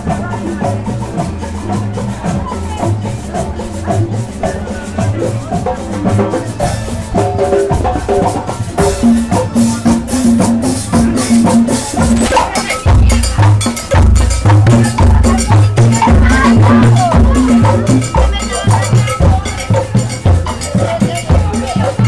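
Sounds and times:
marching band playing: 0:00.0 - 0:22.0
steady drum beat: 0:00.0 - 0:22.0
heavy bass notes: 0:08.5 - 0:21.2.

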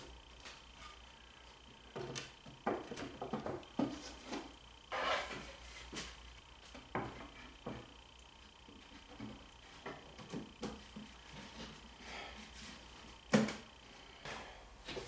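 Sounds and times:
wood scraping rustle: 0:03.8 - 0:06.2.

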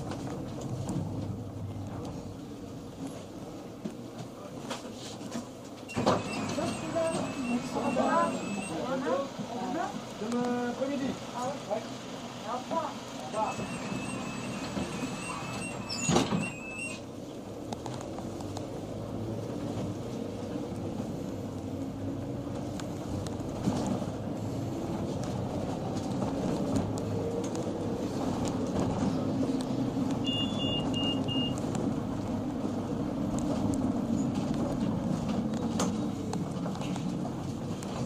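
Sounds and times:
vehicle engine and road rumble: 0:00.0 - 0:38.0
short high beeps: 0:05.9 - 0:08.8, 0:30.3 - 0:31.6.

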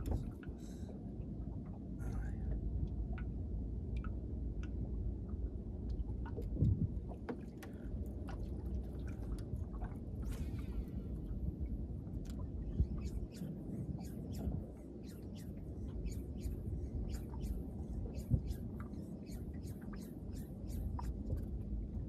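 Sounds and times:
steady low rumble: 0:00.0 - 0:22.0
water lapping against boat hull: 0:00.0 - 0:22.0.

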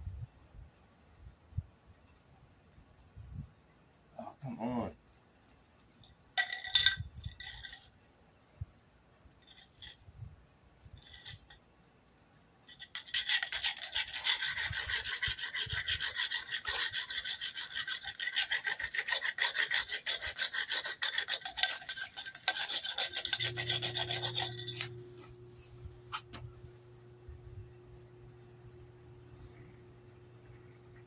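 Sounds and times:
low steady hum: 0:00.0 - 0:18.4, 0:21.4 - 0:31.0
wooden board rasping over tinder: 0:12.7 - 0:25.0.

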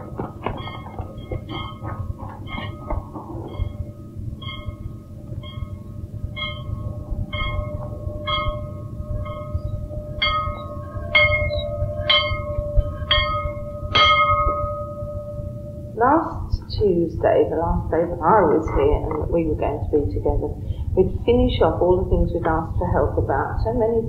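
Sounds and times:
school bell ringing: 0:00.0 - 0:16.3
steady low rumble: 0:00.0 - 0:24.0.

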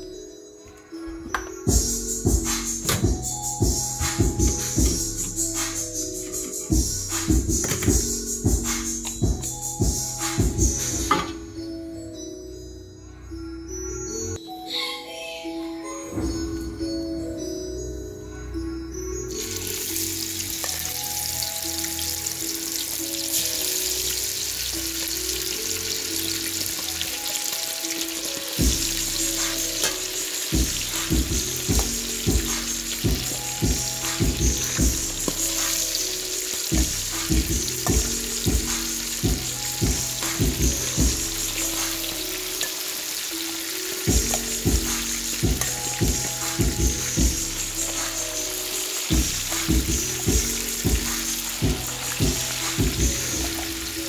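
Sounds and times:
background music: 0:00.0 - 0:54.0
regular drum beat: 0:01.7 - 0:11.4, 0:28.6 - 0:42.6, 0:43.9 - 0:53.8
oil sizzling in deep fryer: 0:19.4 - 0:54.0.

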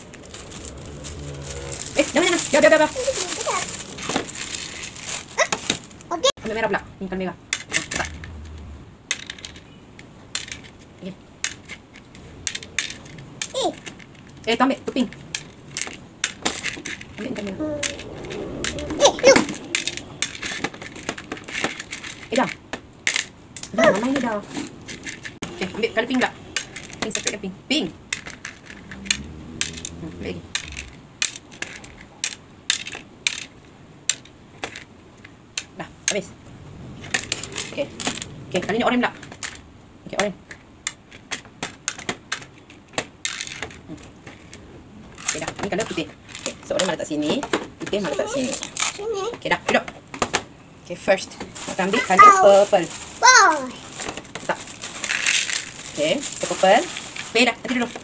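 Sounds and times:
pebbles clicking on plastic dishes: 0:51.5 - 0:58.0.

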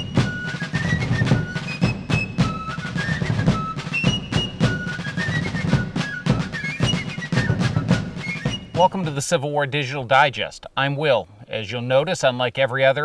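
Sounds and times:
snare and bass drum beat: 0:00.0 - 0:09.1.

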